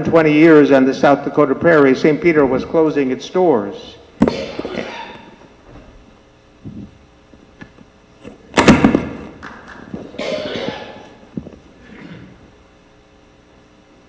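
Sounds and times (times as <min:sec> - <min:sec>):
microphone handling noise: 0:05.6 - 0:10.2, 0:11.0 - 0:12.5
thumps and rubbing on microphone: 0:06.6 - 0:08.4.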